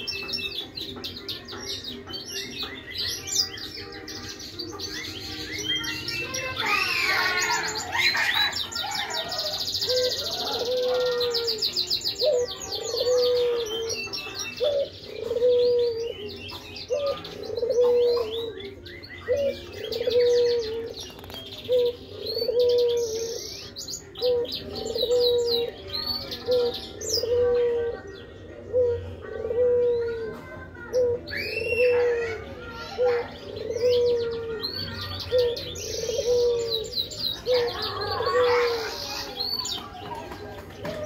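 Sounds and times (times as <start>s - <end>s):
dove cooing: 6.6s - 39.4s.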